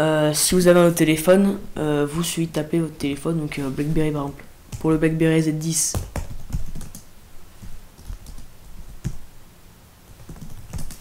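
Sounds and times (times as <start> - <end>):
computer keyboard typing: 5.9 - 9.2, 10.1 - 11.0.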